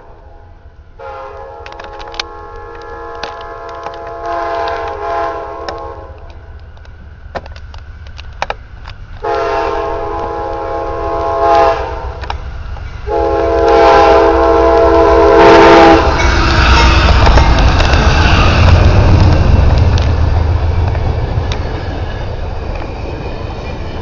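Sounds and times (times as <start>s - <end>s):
locomotive air horn blasts: 0.0s - 6.3s, 9.2s - 12.2s, 13.0s - 16.3s
train rumbling: 0.0s - 24.0s
sharp clicks: 1.4s - 5.0s, 5.6s - 9.2s.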